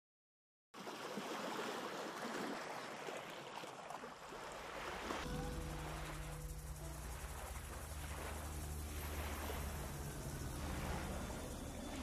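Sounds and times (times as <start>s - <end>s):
sea water lapping: 0.8s - 12.0s
low steady hum: 5.2s - 12.0s.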